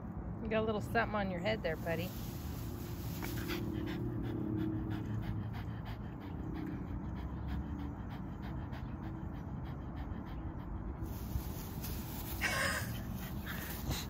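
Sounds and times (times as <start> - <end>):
dog panting rapidly: 3.0 - 14.0.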